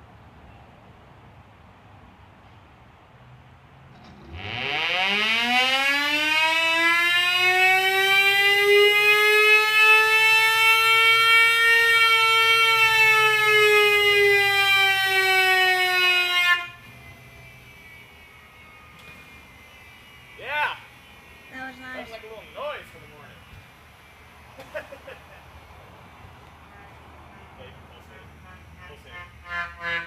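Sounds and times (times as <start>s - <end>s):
siren wailing: 4.1s - 24.5s.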